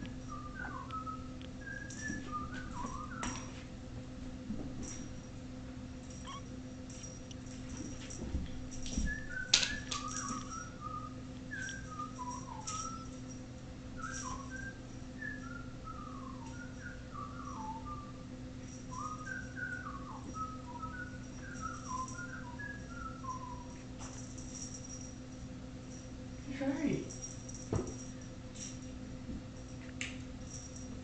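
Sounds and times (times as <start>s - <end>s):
person whistling softly: 0.0s - 3.6s, 9.0s - 13.2s, 14.0s - 18.3s, 18.9s - 23.9s
low electrical hum: 0.0s - 31.0s.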